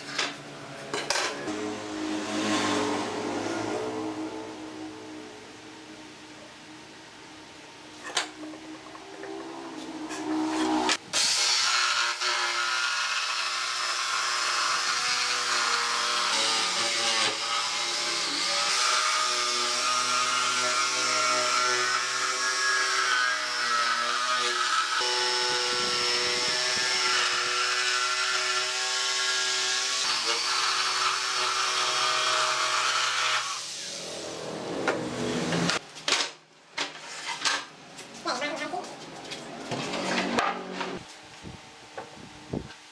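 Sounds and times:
jigsaw cutting wood: 0:10.6 - 0:22.4, 0:23.3 - 0:33.7.

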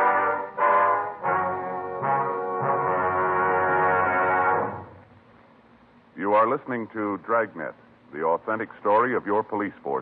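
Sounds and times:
brass-led orchestral sting: 0:00.0 - 0:05.0.

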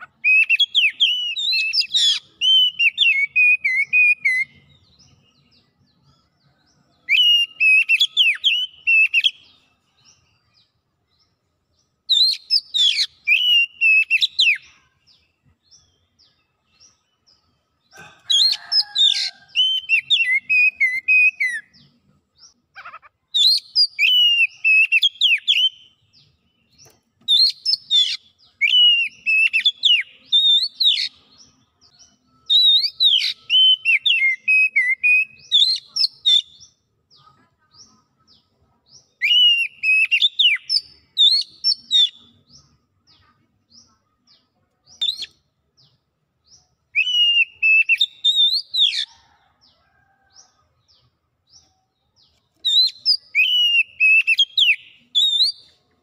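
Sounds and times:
bird singing whistled phrases: 0:00.0 - 0:04.6, 0:07.1 - 0:09.5, 0:12.1 - 0:14.7, 0:19.6 - 0:21.7, 0:23.4 - 0:25.8, 0:27.3 - 0:31.2, 0:32.5 - 0:36.5, 0:39.2 - 0:42.3, 0:46.9 - 0:49.0, 0:52.7 - 0:55.7.

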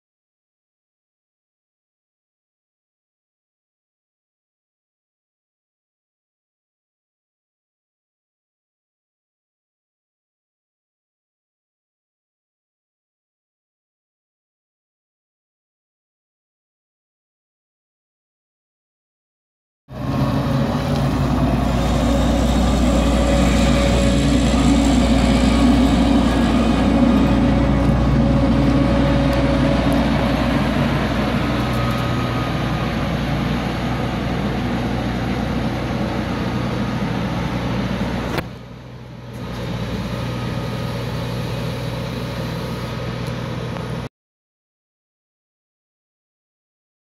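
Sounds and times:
diesel engine running: 0:19.9 - 0:44.1.

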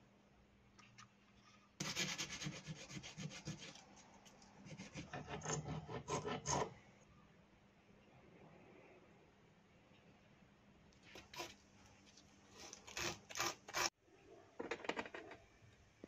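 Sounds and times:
hand file scraping metal fins: 0:01.8 - 0:03.8, 0:04.7 - 0:06.8.

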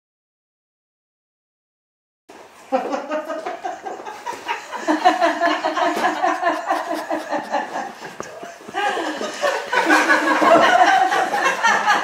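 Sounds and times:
people laughing and chattering: 0:02.6 - 0:12.0.

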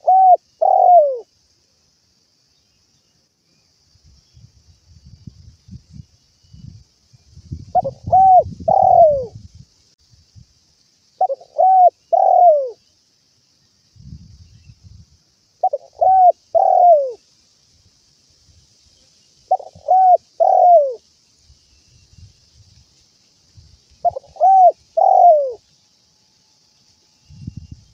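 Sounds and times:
dove cooing: 0:00.0 - 0:01.3, 0:07.7 - 0:09.4, 0:11.2 - 0:12.8, 0:15.6 - 0:17.2, 0:19.5 - 0:21.0, 0:24.0 - 0:25.6.

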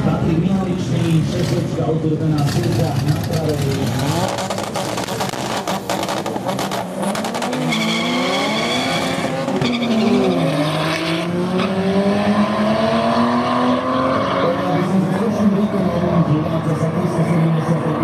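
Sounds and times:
racing car engine revving: 0:00.9 - 0:18.0
exhaust popping: 0:02.4 - 0:07.8.

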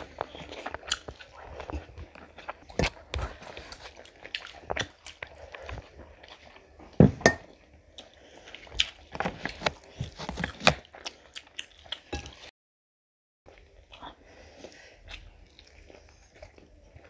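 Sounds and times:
chewing and lip smacks: 0:00.0 - 0:06.7, 0:08.0 - 0:12.4.

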